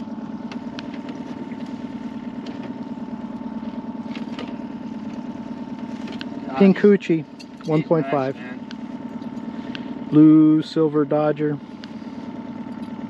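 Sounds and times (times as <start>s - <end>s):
outboard motor droning: 0.0s - 13.0s.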